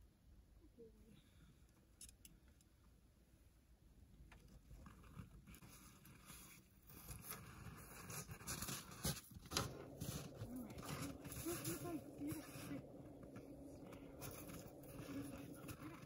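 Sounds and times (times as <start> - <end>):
rustling in snow and brush: 5.3 - 16.0
crunching scuffs in snow: 6.9 - 16.0.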